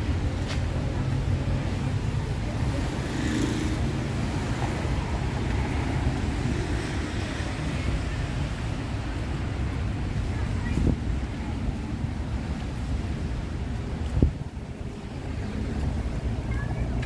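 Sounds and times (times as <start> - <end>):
rumble of passing traffic: 0.0 - 17.0
wind buffeting microphone: 3.8 - 17.0.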